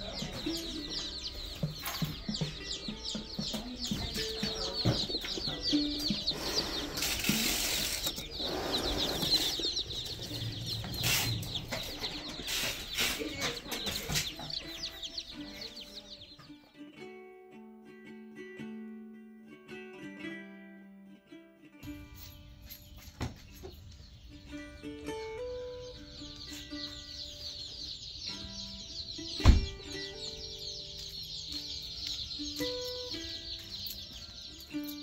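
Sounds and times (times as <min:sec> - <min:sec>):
baby chicks peeping: 0:00.0 - 0:17.2, 0:21.8 - 0:35.0
boxes scraping and rustling: 0:06.3 - 0:14.4.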